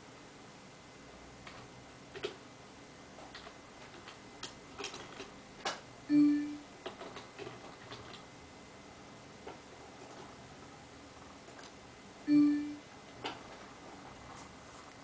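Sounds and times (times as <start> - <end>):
short pitched tone: 6.1 - 6.6, 12.3 - 12.8.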